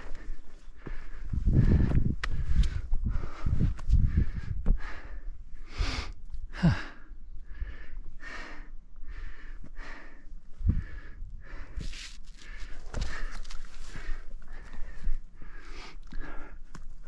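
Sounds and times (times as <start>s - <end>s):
person breathing hard: 0.0s - 17.0s
low thumps of steps: 0.2s - 5.1s.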